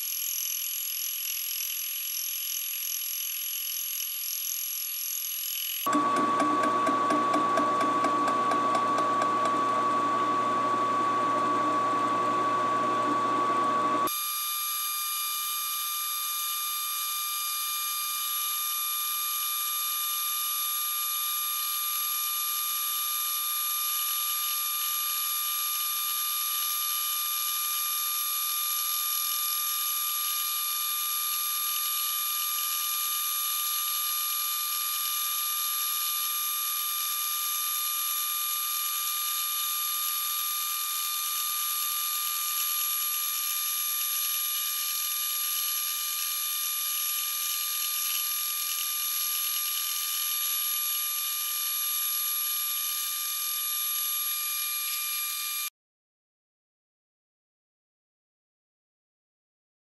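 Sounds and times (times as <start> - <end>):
milling machine whining: 0.0 - 14.3.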